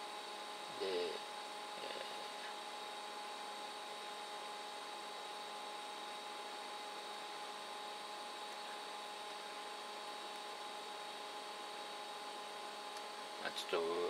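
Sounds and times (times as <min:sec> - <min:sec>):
steady hiss: 0:00.0 - 0:03.0
high electrical whine: 0:00.0 - 0:14.0.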